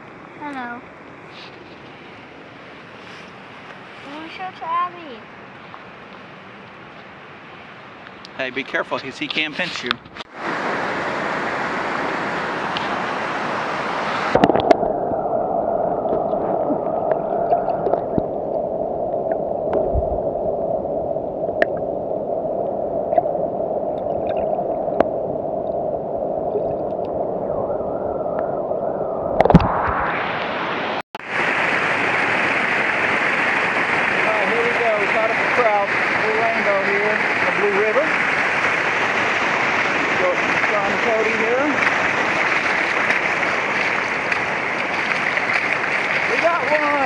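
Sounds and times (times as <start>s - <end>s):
water rushing over rocks: 8.2s - 27.3s, 29.3s - 47.0s
muffled underwater gurgling: 14.2s - 30.2s.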